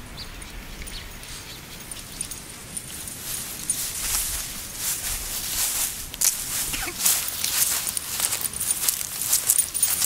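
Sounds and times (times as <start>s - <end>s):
metallic clinking of leash hardware: 0.4s - 4.6s, 6.2s - 10.0s.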